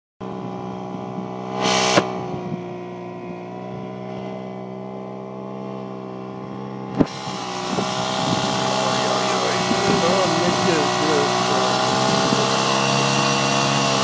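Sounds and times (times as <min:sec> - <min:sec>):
model wheel loader droning: 0:00.2 - 0:14.0
loud hiss: 0:01.6 - 0:02.1.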